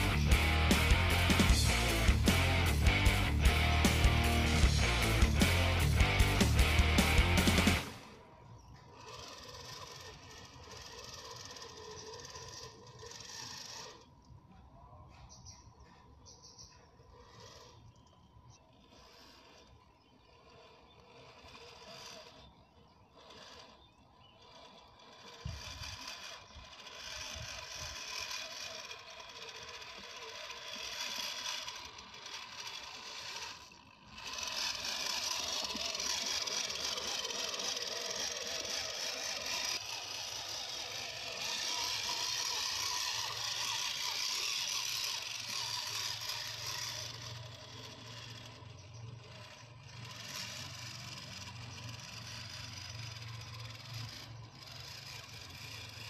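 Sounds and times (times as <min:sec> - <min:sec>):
low hum: 0:00.0 - 0:09.0
rc car motor rattling: 0:00.0 - 0:56.0.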